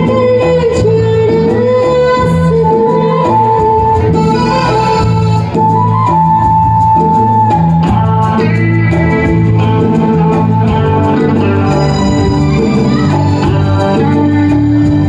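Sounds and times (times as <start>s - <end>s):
live band playing: 0.0s - 15.0s
long held high note: 4.0s - 7.5s, 11.6s - 14.8s.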